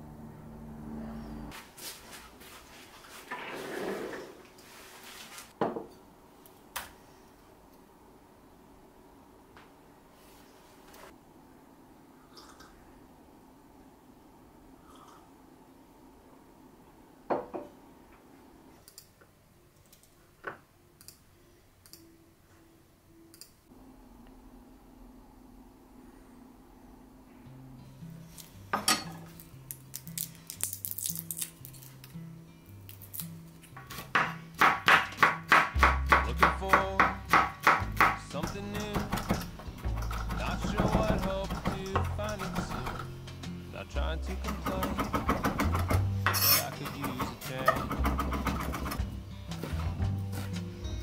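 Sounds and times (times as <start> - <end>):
low hum: 0.0 - 1.6, 23.1 - 28.7
dishes and utensils clattering: 28.8 - 29.3.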